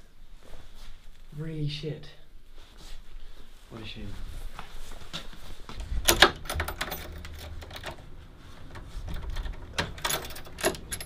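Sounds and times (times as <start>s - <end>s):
keys clicking in door lock: 6.0s - 11.0s.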